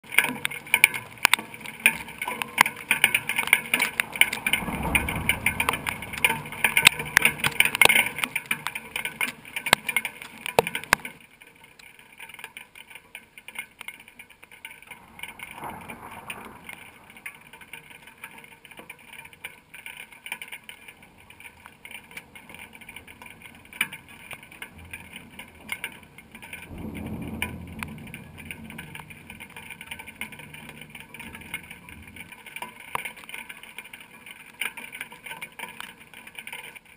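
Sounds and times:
heavy rain falling: 0:00.0 - 0:36.9
rolls of thunder: 0:04.0 - 0:08.2, 0:26.5 - 0:32.2.

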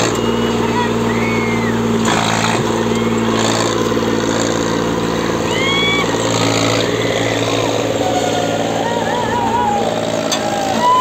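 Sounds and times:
short whistles: 0:00.0 - 0:01.9
crowd noise: 0:00.0 - 0:11.0
tractor engine at high revs: 0:00.0 - 0:11.0.

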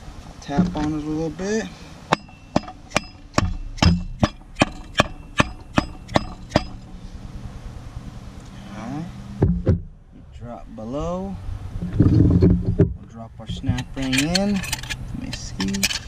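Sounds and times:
sharp metallic taps: 0:02.1 - 0:07.0, 0:09.4 - 0:10.0.

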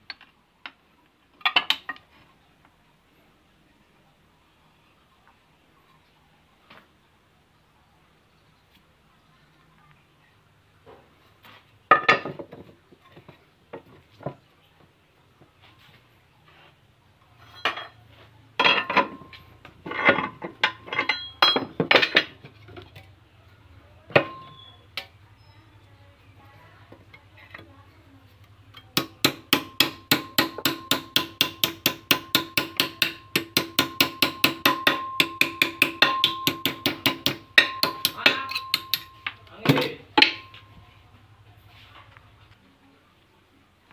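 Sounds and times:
metal knocks and clinks: 0:17.4 - 0:18.0, 0:18.6 - 0:22.6, 0:28.8 - 0:40.7
hammer striking steel bar: 0:28.9 - 0:39.4, 0:40.2 - 0:40.6.

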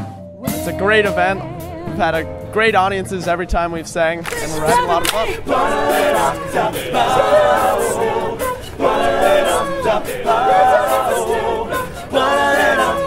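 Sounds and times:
group singing in close harmony: 0:04.2 - 0:13.0.

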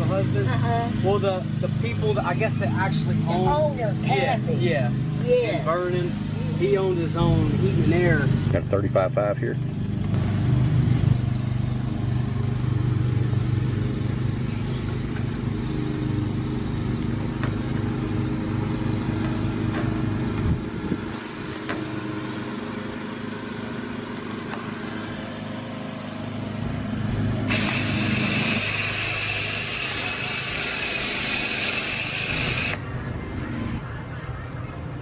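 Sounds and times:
foam sprayer hissing: 0:27.4 - 0:32.8.

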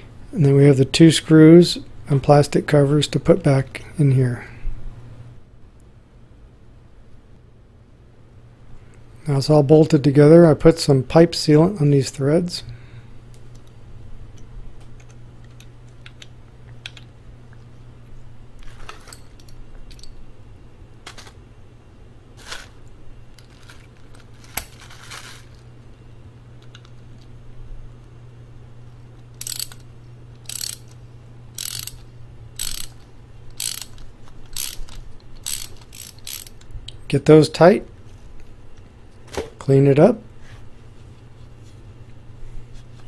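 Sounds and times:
ratchet wrench clicking: 0:29.4 - 0:31.0, 0:31.6 - 0:36.7.

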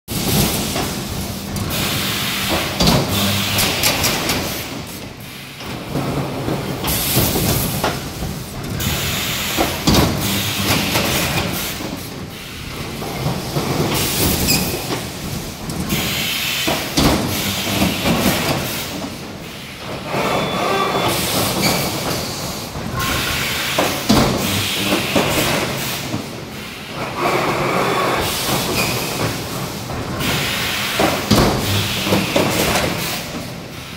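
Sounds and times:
compressed air hiss: 0:01.7 - 0:05.5, 0:15.9 - 0:21.4, 0:29.8 - 0:33.3.

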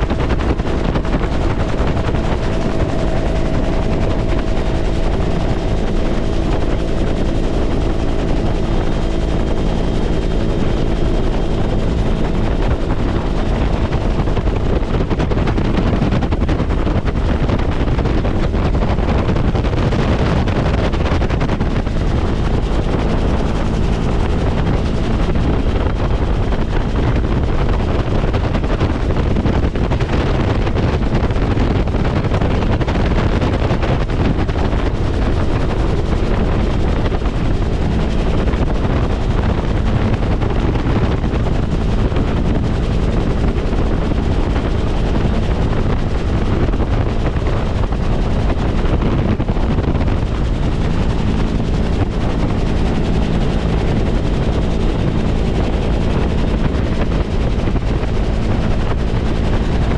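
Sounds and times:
helicopter engine and rotor: 0:00.0 - 0:59.9
wind buffeting microphone: 0:00.0 - 0:59.9.

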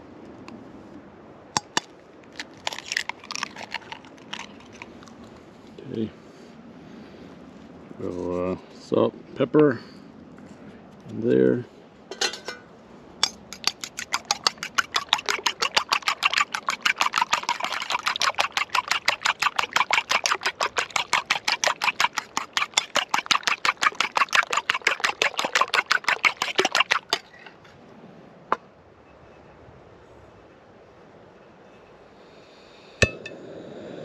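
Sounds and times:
knife beating eggs in bowl: 0:02.6 - 0:04.8, 0:13.2 - 0:27.6.

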